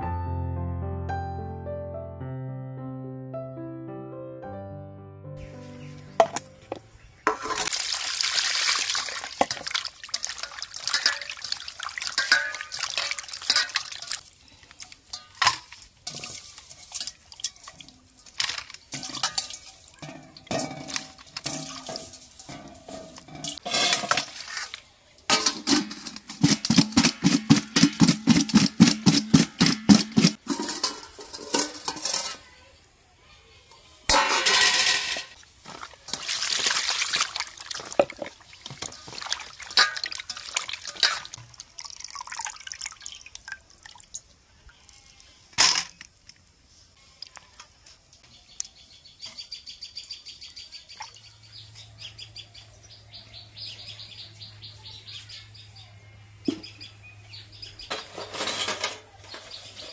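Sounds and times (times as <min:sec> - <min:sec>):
faint birds chirping: 0:05.3 - 0:07.4, 0:47.0 - 0:59.9
water splashing into bowl: 0:07.3 - 0:32.2, 0:34.2 - 0:44.4
hands sloshing and rubbing fish: 0:07.6 - 0:20.0, 0:20.7 - 0:24.9, 0:35.4 - 0:44.0.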